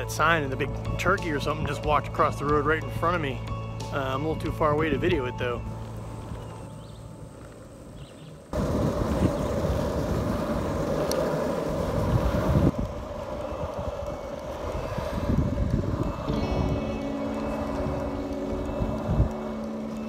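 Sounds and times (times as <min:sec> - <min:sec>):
longboard wheels rumbling on asphalt: 0:00.0 - 0:20.0
wind on microphone: 0:07.6 - 0:20.0.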